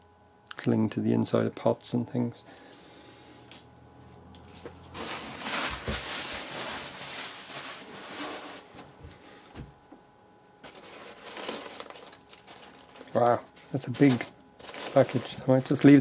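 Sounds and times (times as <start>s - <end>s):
tissue paper rustling and crinkling: 4.5s - 8.9s, 10.6s - 16.0s.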